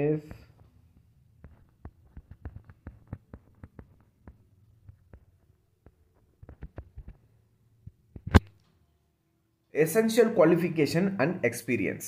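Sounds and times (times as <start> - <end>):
soft clicks and taps: 0.2 - 8.8.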